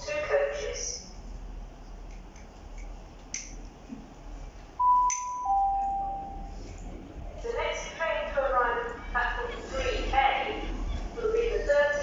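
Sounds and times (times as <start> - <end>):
two-note electronic chime: 4.8 - 6.5.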